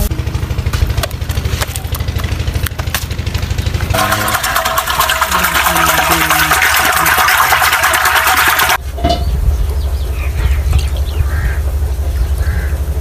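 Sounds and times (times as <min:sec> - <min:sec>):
liquid glugging into a bowl: 0:03.9 - 0:09.2
strong low rumble: 0:08.8 - 0:13.0.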